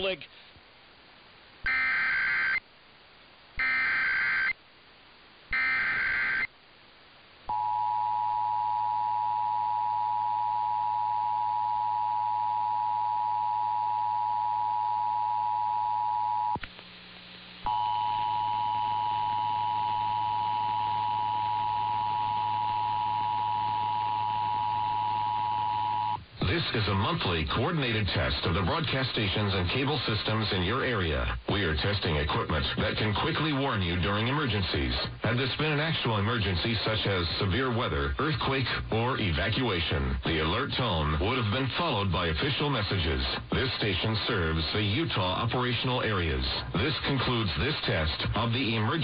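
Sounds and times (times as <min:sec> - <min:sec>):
warbling data tones: 0:01.7 - 0:02.6, 0:03.6 - 0:04.6, 0:05.5 - 0:06.5.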